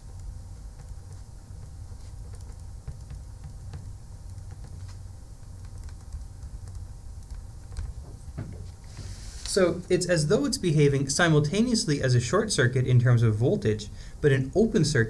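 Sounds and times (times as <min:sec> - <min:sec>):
faint clicks and taps: 0:00.0 - 0:09.6
low background rumble: 0:00.0 - 0:15.0.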